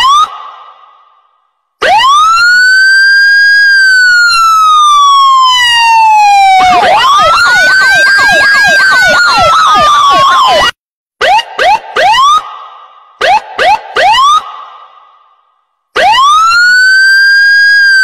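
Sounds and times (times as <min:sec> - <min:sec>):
siren wailing and yelping: 0:01.8 - 0:12.4, 0:13.2 - 0:14.5, 0:16.0 - 0:18.0.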